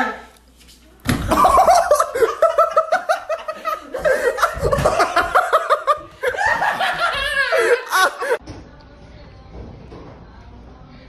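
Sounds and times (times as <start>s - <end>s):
woman laughing: 1.3s - 8.4s.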